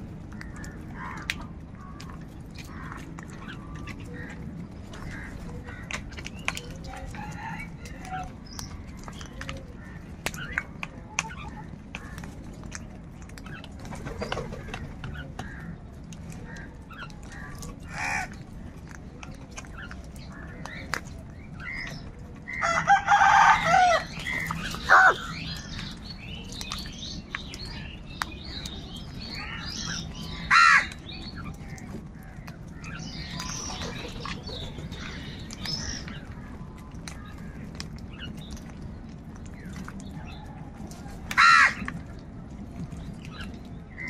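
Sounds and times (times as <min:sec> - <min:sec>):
crows cawing: 0:00.4 - 0:01.4, 0:17.4 - 0:18.4, 0:24.8 - 0:25.4, 0:30.4 - 0:30.9, 0:41.4 - 0:41.9.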